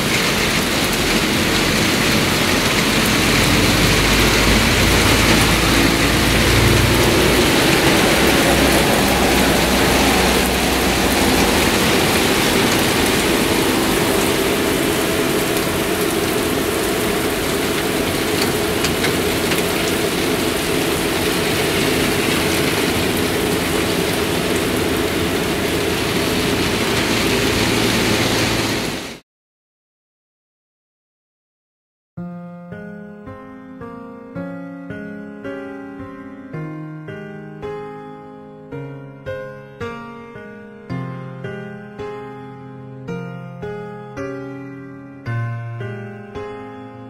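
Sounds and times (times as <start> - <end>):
heavy rain: 0.0 - 29.2
low vehicle rumble: 0.0 - 29.2.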